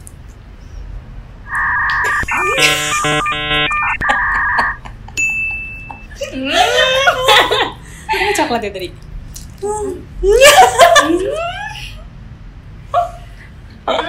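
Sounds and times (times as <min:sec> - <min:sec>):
electronic two-note tone: 0:01.5 - 0:04.8.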